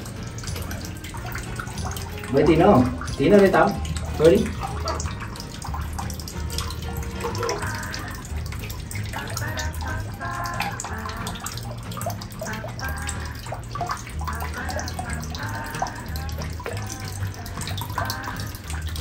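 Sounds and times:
water splashing in a tub: 0.0s - 19.0s.

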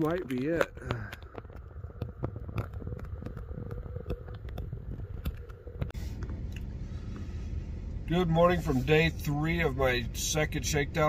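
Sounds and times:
light clicks and crackles: 0.0s - 7.3s
wind rumble on microphone: 0.0s - 10.2s.

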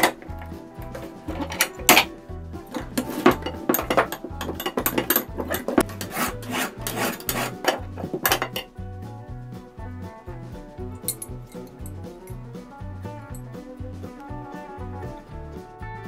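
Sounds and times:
metal tool scraping steel: 0.0s - 8.7s
background music: 0.0s - 16.0s.

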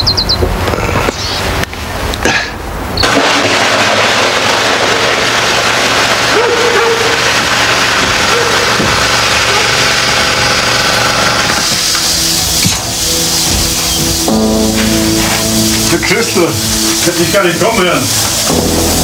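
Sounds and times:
motor running: 4.7s - 17.0s.

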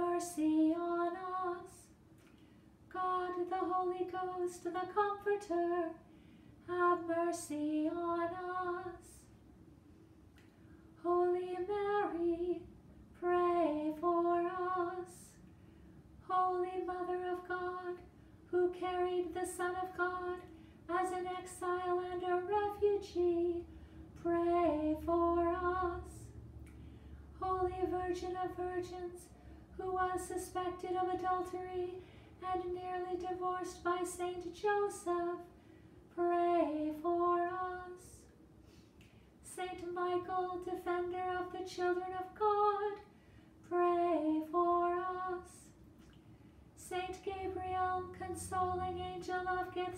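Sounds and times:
woman chanting: 46.8s - 49.9s.

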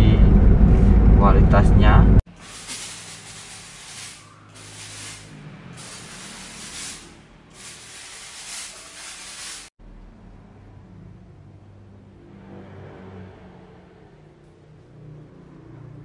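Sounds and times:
spraying hiss: 2.3s - 9.8s.

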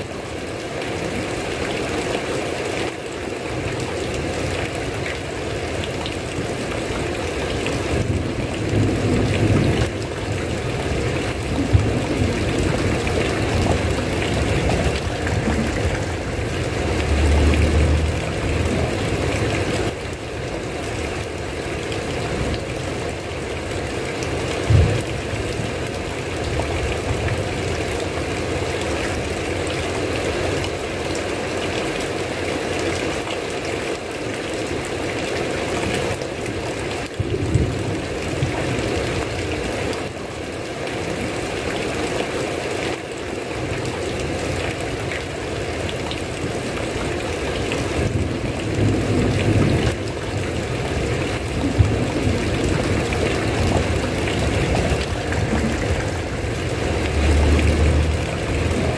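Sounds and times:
heavy rain falling: 0.0s - 58.9s
low rumbles: 11.6s - 20.0s, 51.6s - 58.9s.

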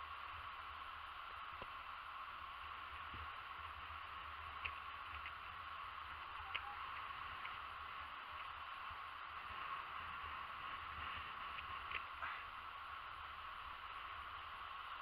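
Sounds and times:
waves washing onto shore: 0.0s - 15.0s
faint clicks: 4.6s - 5.4s, 6.4s - 7.6s, 11.5s - 12.4s.

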